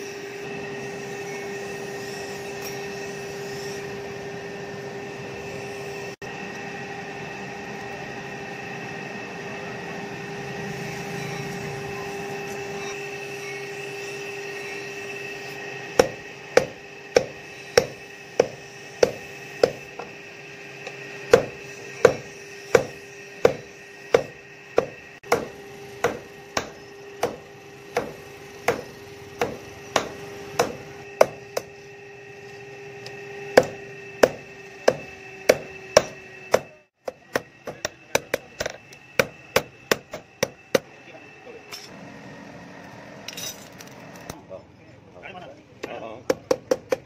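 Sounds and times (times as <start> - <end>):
hammer striking steel on anvil: 15.9 - 20.1, 20.8 - 31.8, 33.0 - 41.0.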